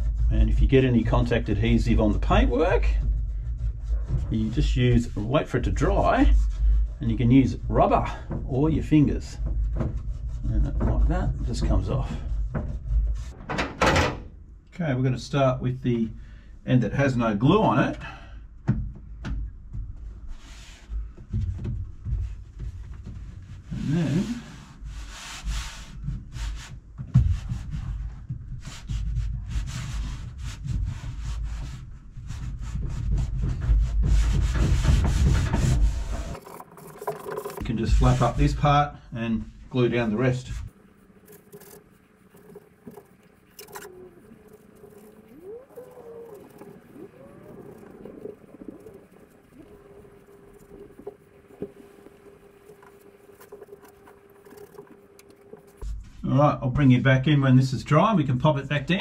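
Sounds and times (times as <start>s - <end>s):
faint steady hum: 36.1s - 59.0s.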